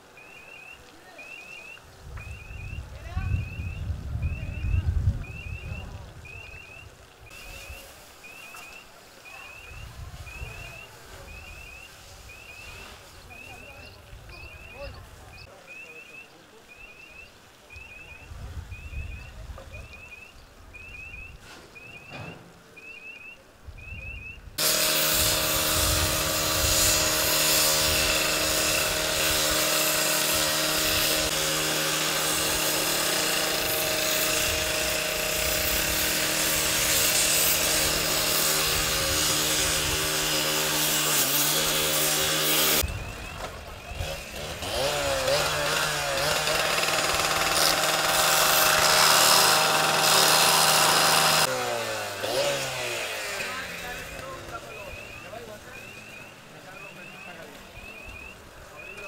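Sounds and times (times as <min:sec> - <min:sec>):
cut-off saw grinding metal: 0:24.6 - 0:42.9, 0:44.0 - 0:55.1.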